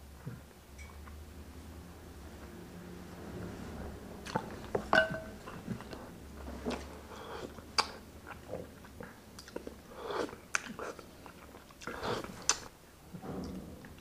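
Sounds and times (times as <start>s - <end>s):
chewing: 4.2s - 12.7s
cup clinking on plate: 4.9s - 5.4s
wet mouth clicks: 11.8s - 12.7s.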